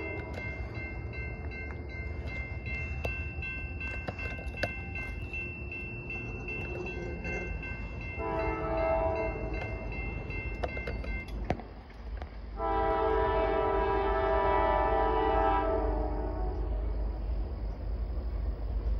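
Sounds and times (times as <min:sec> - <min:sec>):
crossing bell ringing: 0:00.0 - 0:17.3
low rumble of train: 0:00.0 - 0:18.9
locomotive horn blast: 0:08.2 - 0:09.5, 0:12.6 - 0:17.1.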